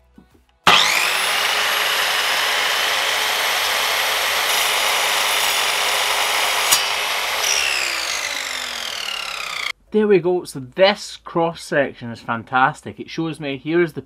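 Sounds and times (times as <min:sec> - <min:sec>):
mitre saw whining: 0:00.7 - 0:09.7.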